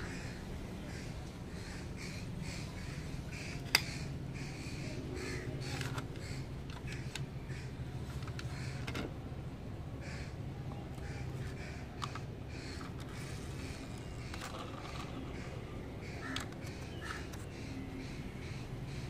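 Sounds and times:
bird calling: 0.0 - 9.3, 9.9 - 19.0
toy car click: 11.4 - 15.6, 16.2 - 17.4.

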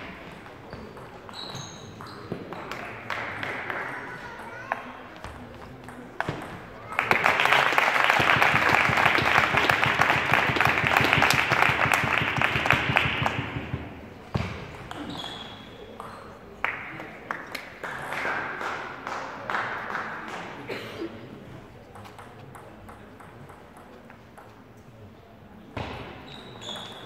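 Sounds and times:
spectators clapping and cheering: 6.8 - 13.8, 16.6 - 20.7
ping-pong ball taps: 21.9 - 24.6.

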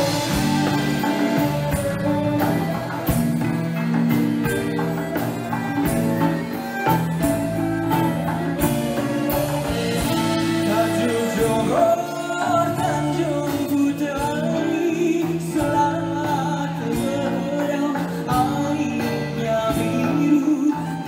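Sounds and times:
accordion: 0.0 - 13.2
band playing: 0.0 - 21.0
drum kit: 0.0 - 21.0
keyboards: 0.0 - 21.0
man singing: 9.2 - 21.0.

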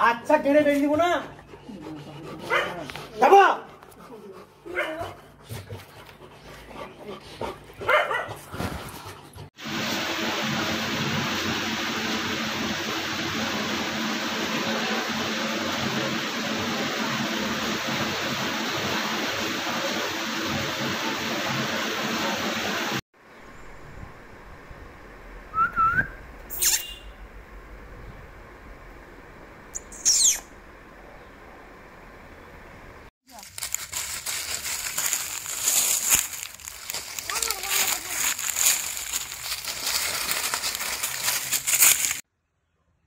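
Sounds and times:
loud steady hiss: 9.6 - 25.5, 33.3 - 42.2.

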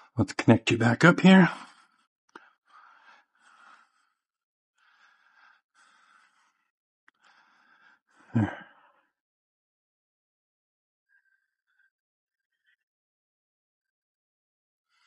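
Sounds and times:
man breathing: 1.6 - 9.2
man sighing: 8.3 - 8.7.

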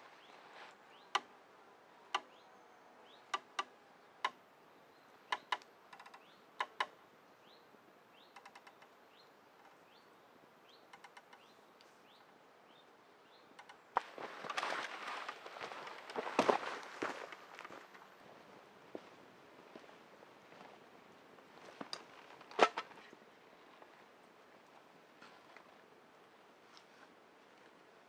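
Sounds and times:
swing chair creaking and clicking: 5.3 - 6.9, 8.3 - 8.9, 10.9 - 11.5, 13.6 - 16.2, 21.8 - 23.2.

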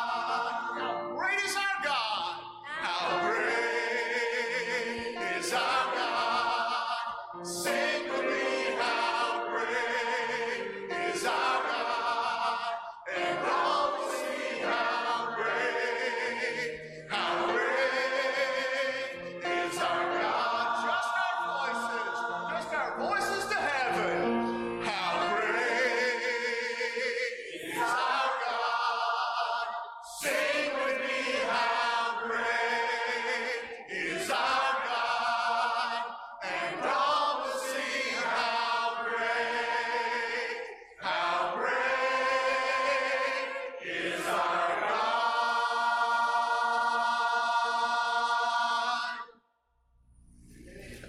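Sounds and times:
man leading song on microphone: 0.0 - 13.8, 16.2 - 30.5
church choir singing a hymn: 0.0 - 49.4, 50.6 - 51.0.

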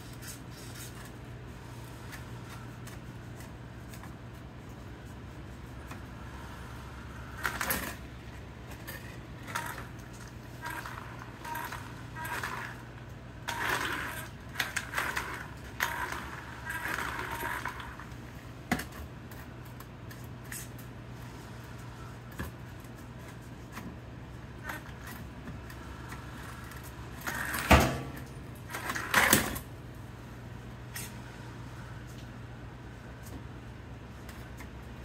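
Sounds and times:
scrapes and rustles of handling: 0.0 - 6.8
steady low hum: 0.0 - 35.0.

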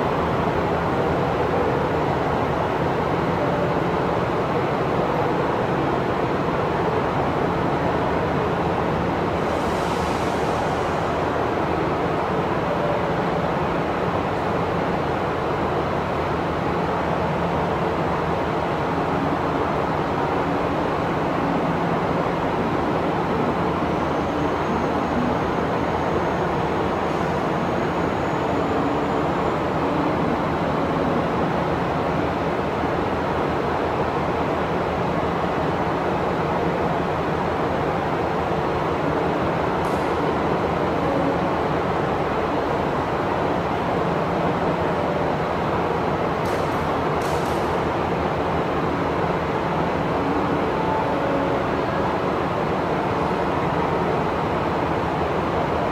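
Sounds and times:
diesel railcar engine: 0.0 - 55.9
hiss of noise: 9.2 - 12.4.

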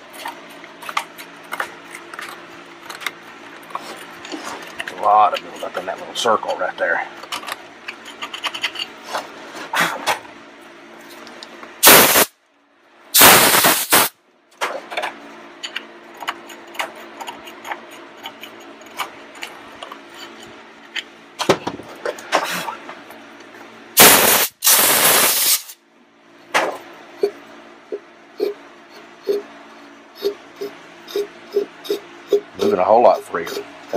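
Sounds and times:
screwdriver scraping carbon: 7.9 - 9.0
compressed air blasts: 11.8 - 12.4, 13.1 - 14.2, 24.0 - 25.8.

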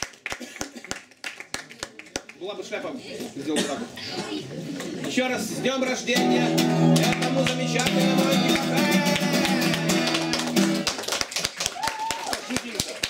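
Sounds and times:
hand claps: 0.0 - 2.4, 6.6 - 13.0
acoustic guitar strummed: 6.2 - 10.9.

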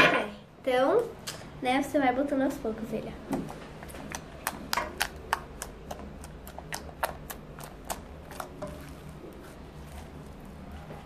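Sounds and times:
slime clicking and popping: 3.8 - 8.6.

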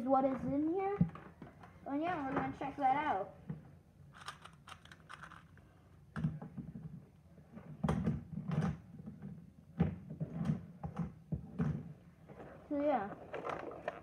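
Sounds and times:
box and plastic knocking and rubbing: 6.2 - 12.5.

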